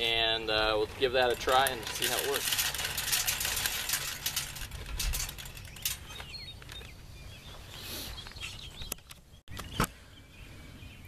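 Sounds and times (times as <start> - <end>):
light metallic clicks and rattles: 1.0 - 6.9
small birds chirping: 5.0 - 11.0.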